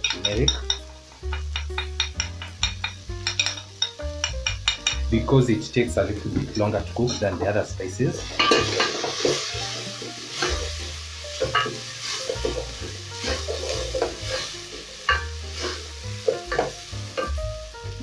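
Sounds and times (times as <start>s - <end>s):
food sizzling in pot: 0.0s - 18.0s
wooden spoon scraping pot: 11.4s - 17.4s.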